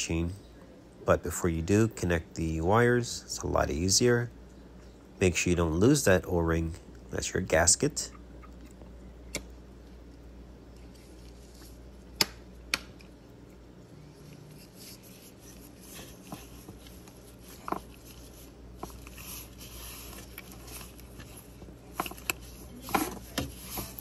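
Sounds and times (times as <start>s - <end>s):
gloved hands rubbing and rustling: 10.0s - 12.2s, 13.1s - 24.0s.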